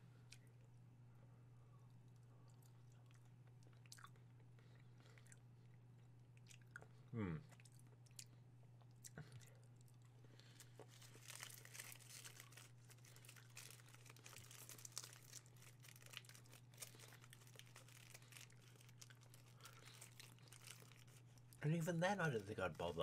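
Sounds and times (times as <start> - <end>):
steady low hum: 0.0 - 23.0
wrapper crinkling: 10.8 - 23.0.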